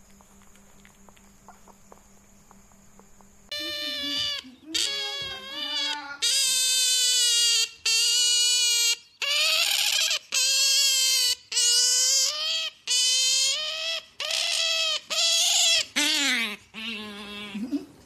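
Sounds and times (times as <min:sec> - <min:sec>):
otter high-pitched calls: 0:03.5 - 0:17.6.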